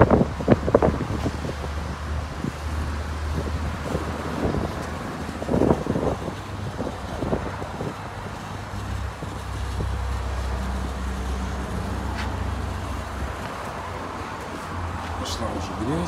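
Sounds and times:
foam lance spraying: 0:00.0 - 0:16.0.

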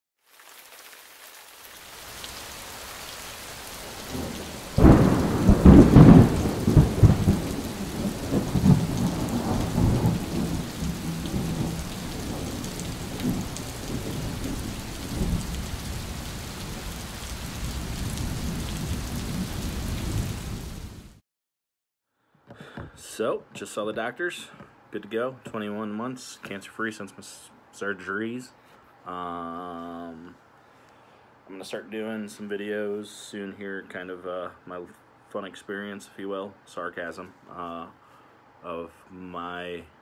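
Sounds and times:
steady rain: 0:00.2 - 0:21.2
thunderclap rumbling: 0:03.8 - 0:21.1.

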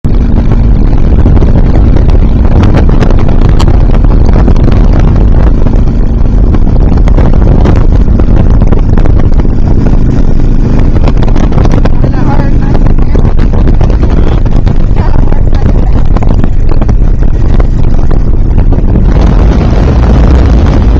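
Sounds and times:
motorcycle engine drone: 0:00.0 - 0:20.9
wind buffeting microphone: 0:00.0 - 0:20.9.

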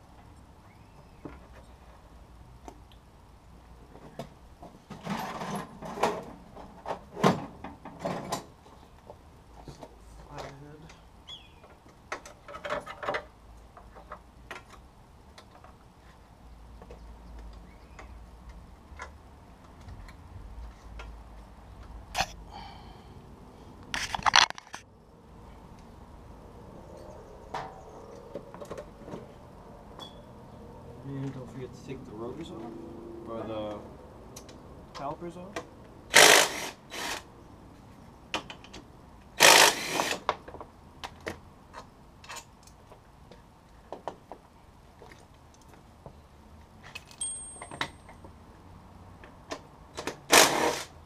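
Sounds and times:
metal tools clinking: 0:46.9 - 0:48.2.

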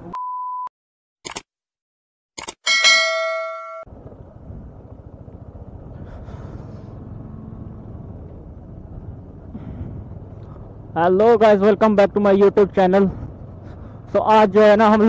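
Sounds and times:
ringing chime: 0:02.7 - 0:03.9
road noise on gravel: 0:02.9 - 0:15.0
motorcycle engine rumbling: 0:03.0 - 0:15.0.

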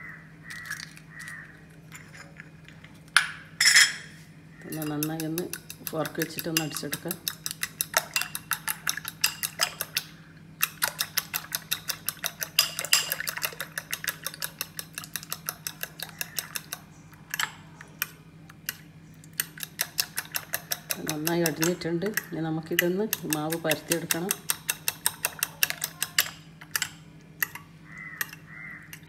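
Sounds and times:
fork clinking against bowl: 0:04.7 - 0:09.9, 0:10.6 - 0:18.1, 0:19.4 - 0:29.0.

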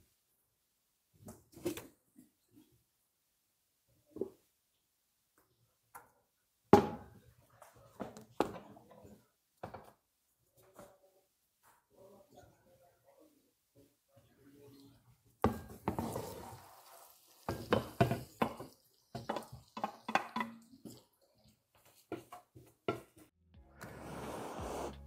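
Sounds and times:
spatula scraping frying pan: 0:15.8 - 0:21.1
music: 0:23.4 - 0:25.0.

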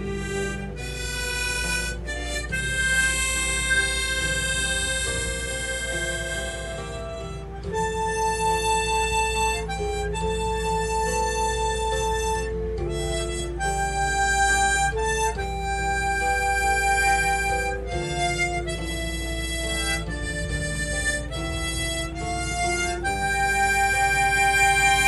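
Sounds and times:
slow reedy instrumental melody: 0:00.0 - 0:25.0.

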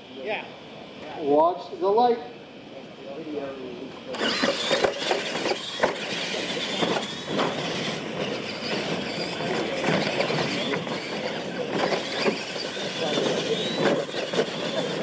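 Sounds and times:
whine of electric motors and gears: 0:03.1 - 0:15.0
rattling drivetrain: 0:04.2 - 0:15.0
toy trucks knocking on ramps: 0:04.2 - 0:15.0.

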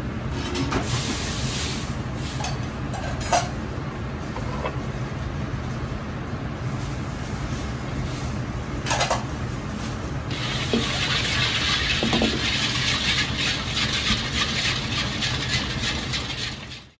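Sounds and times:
low stove rumble: 0:00.0 - 0:16.9
oil sizzling and crackling in wok: 0:10.3 - 0:16.9.

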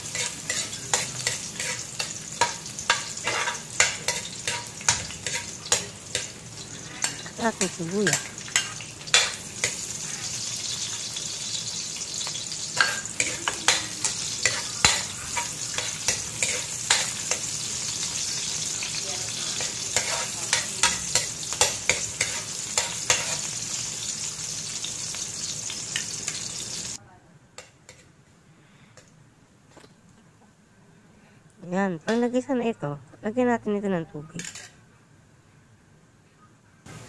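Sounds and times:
metal spatula scraping a pan: 0:00.0 - 0:24.8
food sizzling in a wok: 0:00.0 - 0:27.0.

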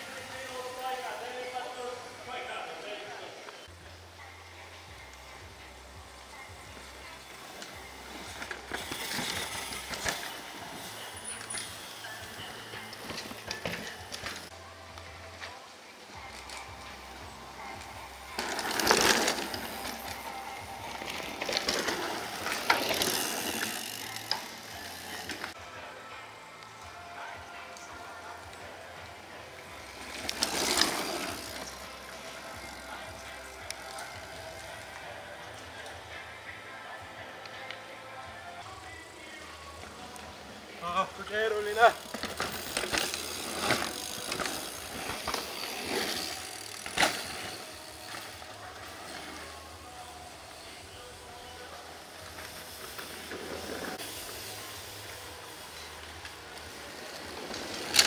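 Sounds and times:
bike tyres scrubbing through dirt: 0:07.4 - 0:14.5, 0:17.6 - 0:25.6, 0:29.7 - 0:33.1, 0:41.6 - 0:49.6.

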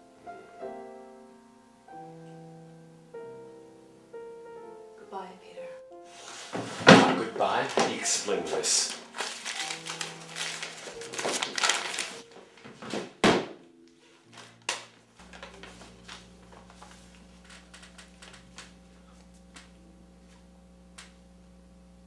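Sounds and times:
paper rustling and crinkling: 0:06.2 - 0:13.2, 0:14.1 - 0:19.7
steady low hum: 0:06.3 - 0:22.0
loud thunk: 0:06.6 - 0:07.4, 0:12.9 - 0:13.6.

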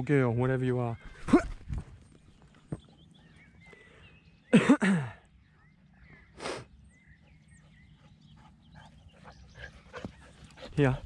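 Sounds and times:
faint bird chirps: 0:00.5 - 0:11.0.

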